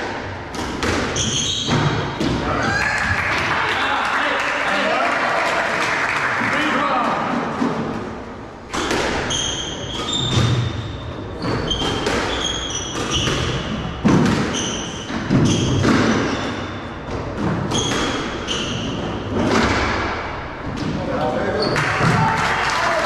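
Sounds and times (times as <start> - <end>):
shoes squeaking on wooden floor: 1.1 - 2.6, 8.6 - 19.5
squash ball cracking off rackets: 8.6 - 10.6.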